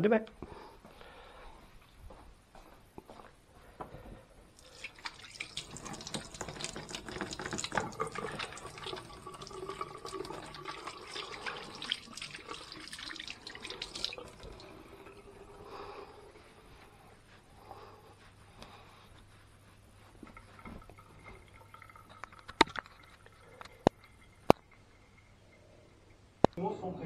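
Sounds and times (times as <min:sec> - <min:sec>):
hands rinsing under water: 0:04.6 - 0:16.4
tap running into sink: 0:05.4 - 0:10.8.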